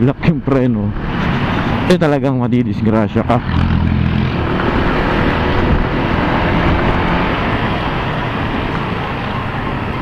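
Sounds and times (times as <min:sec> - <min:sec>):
wind rush on microphone: 0:04.3 - 0:10.0.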